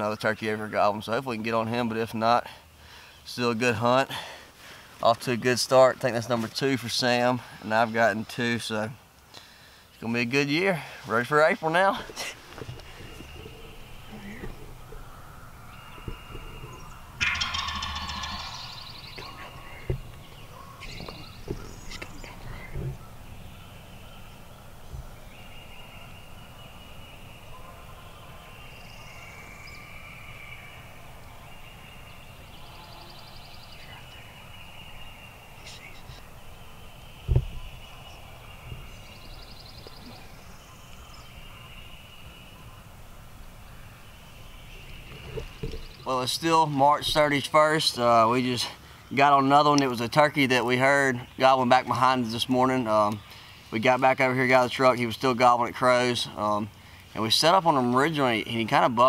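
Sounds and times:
turkey gobbling: 12.1 - 22.1
small bird trilling: 13.1 - 22.7.

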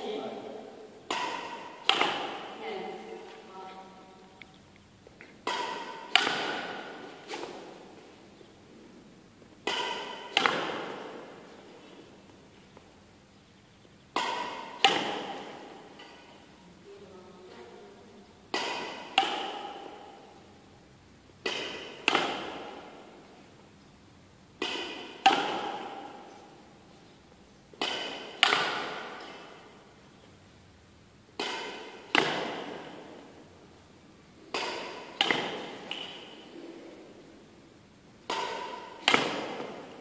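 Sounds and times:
racket hitting shuttlecock: 0.0 - 3.5, 5.4 - 8.0, 9.6 - 11.8, 14.1 - 16.4, 18.5 - 20.5, 21.4 - 23.4, 24.6 - 26.9, 27.7 - 30.0, 31.3 - 33.5, 34.4 - 36.7, 38.2 - 40.0.

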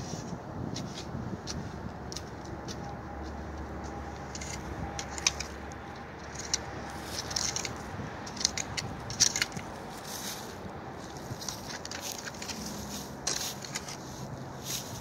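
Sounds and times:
soil and stones crunching: 0.0 - 15.0
shovel scraping gravelly dirt: 6.2 - 15.0.

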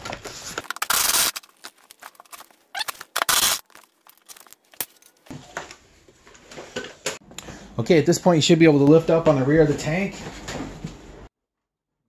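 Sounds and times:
velcro strips tearing: 0.6 - 5.0.

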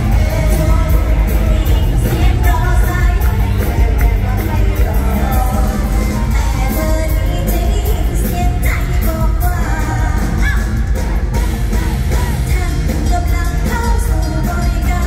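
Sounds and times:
band music through loudspeakers: 0.0 - 15.0
heavy bass beat: 0.0 - 15.0
person singing: 0.0 - 15.0.

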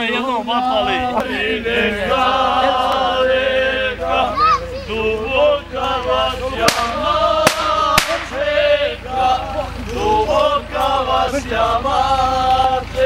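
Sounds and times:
men singing together: 0.0 - 13.0
sharp cracks: 6.6 - 8.5.

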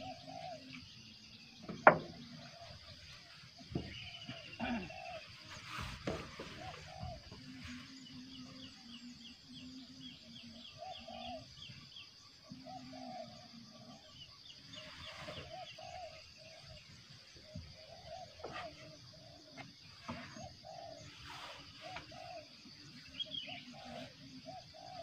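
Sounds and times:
short low bird calls: 3.6 - 11.6.

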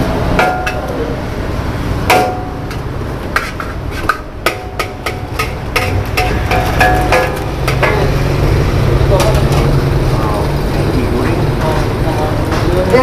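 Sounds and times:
metal spatula clanking on wok: 0.4 - 1.0, 2.1 - 9.8.

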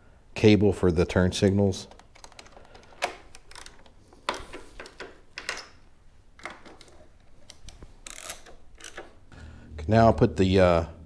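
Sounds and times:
metal handling noises: 1.5 - 9.3
torque wrench ratchet clicking: 8.1 - 9.0.

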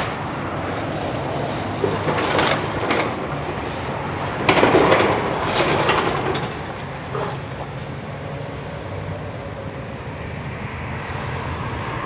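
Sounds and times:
heavy machinery engine hum: 0.0 - 12.0
timbers cracking and crashing: 0.9 - 7.7
splintering and falling debris: 1.8 - 7.4.

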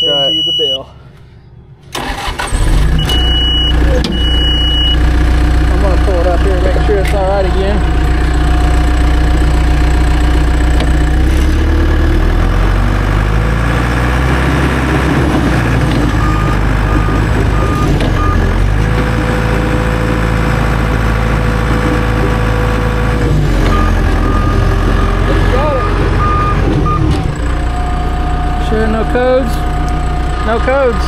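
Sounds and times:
backup alarm beeping: 0.0 - 1.0, 3.0 - 5.0, 16.2 - 18.5, 23.7 - 29.4
diesel engine running: 1.9 - 31.0.

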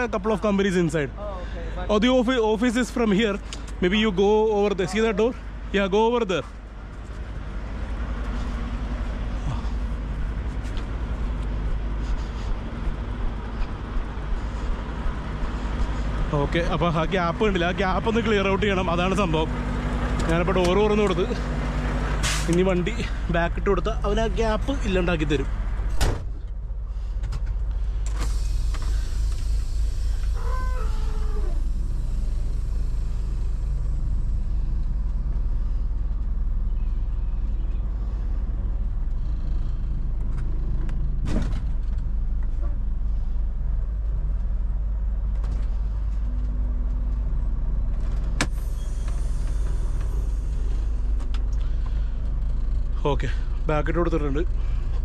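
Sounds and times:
truck engine idling: 0.0 - 55.0
short falling squeal: 29.8 - 33.4, 48.5 - 51.2.

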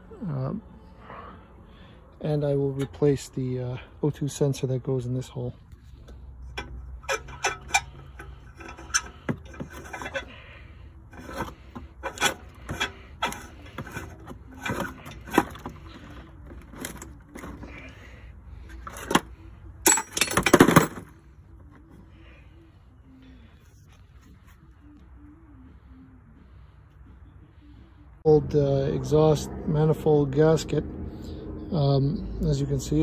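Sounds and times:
metal threads scraping: 5.7 - 21.0
metal parts clicking and knocking: 6.5 - 10.4, 11.1 - 17.8, 18.7 - 21.2.

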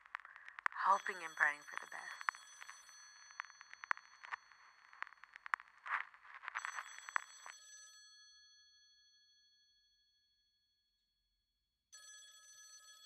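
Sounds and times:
faint telephone bell ringing: 6.6 - 8.8, 12.0 - 13.0.

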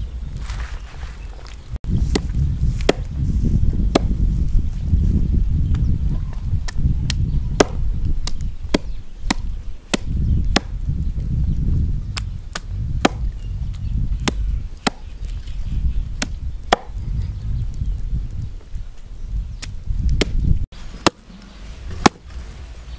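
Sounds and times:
hatchet chopping on wooden board: 2.8 - 3.1, 3.9 - 4.1, 7.1 - 10.7, 12.5 - 13.3, 16.2 - 17.0, 22.0 - 22.2.

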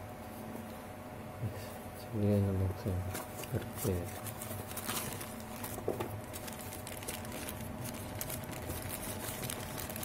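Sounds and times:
plastic bag and cardboard rustling: 3.1 - 10.0.

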